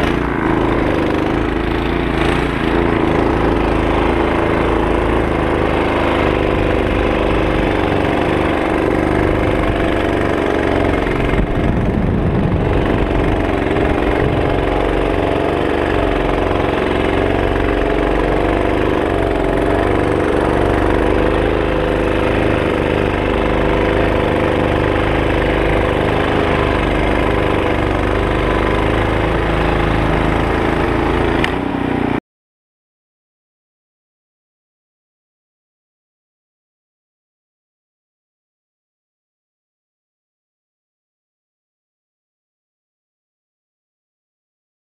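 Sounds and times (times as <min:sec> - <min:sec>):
snow thrower engine running: 0:00.0 - 0:32.2.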